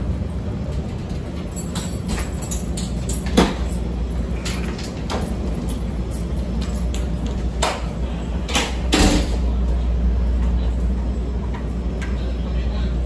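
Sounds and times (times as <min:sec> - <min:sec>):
train car hum: 0:00.0 - 0:13.0.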